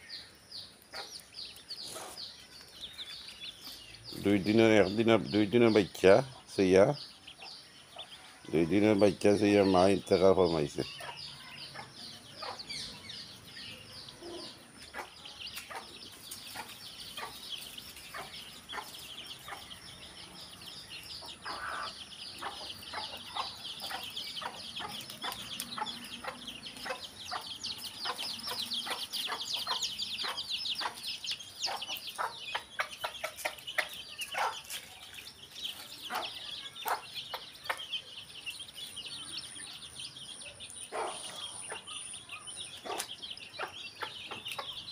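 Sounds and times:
chicks peeping: 0.0s - 44.9s
hen clucking: 7.9s - 13.0s, 18.1s - 19.8s, 21.2s - 35.0s, 40.9s - 44.9s.

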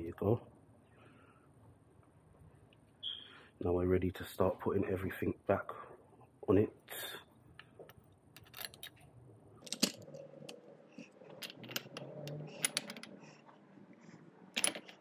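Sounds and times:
metal parts clicking and knocking: 7.6s - 9.0s, 9.6s - 10.6s, 11.3s - 13.2s, 14.5s - 15.0s.

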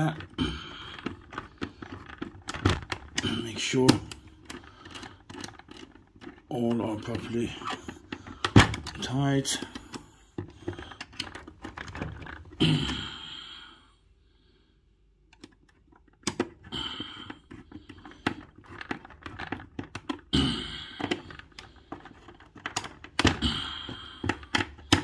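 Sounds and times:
screwdriver clicking and scraping: 1.0s - 12.5s, 15.3s - 20.3s, 21.0s - 25.0s.

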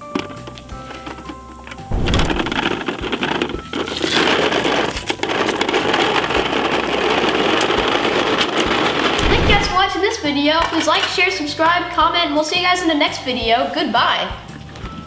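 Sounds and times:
toy truck wheels rolling on concrete: 0.0s - 12.0s.

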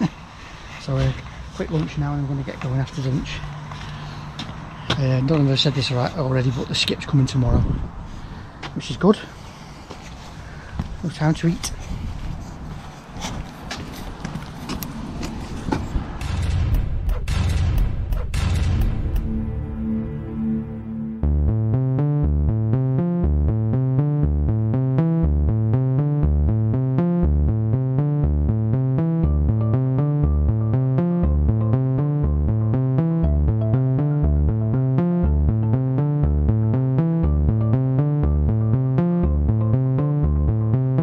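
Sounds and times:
electronic background music: 16.2s - 41.0s.

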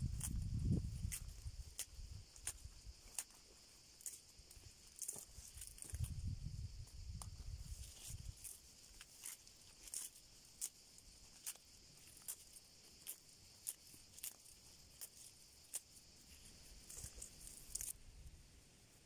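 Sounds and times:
steady high hiss: 0.0s - 19.0s.

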